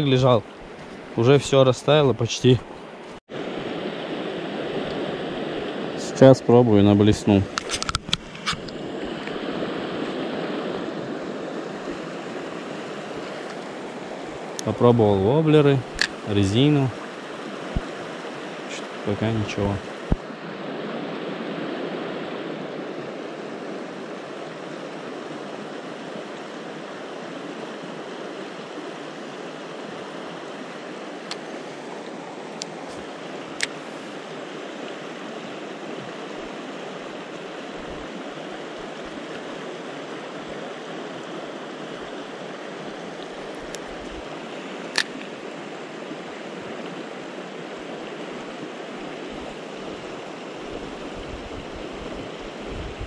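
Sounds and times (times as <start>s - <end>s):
sharp clicks: 44.9s - 45.3s.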